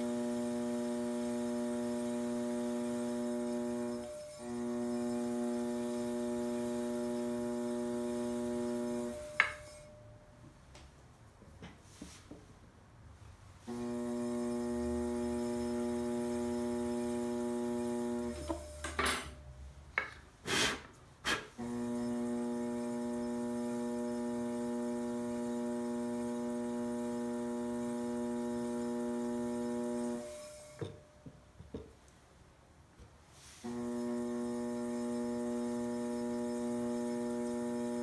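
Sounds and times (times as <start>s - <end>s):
pottery wheel motor humming: 0.0s - 9.9s, 13.6s - 19.3s, 21.6s - 31.0s, 33.6s - 38.0s.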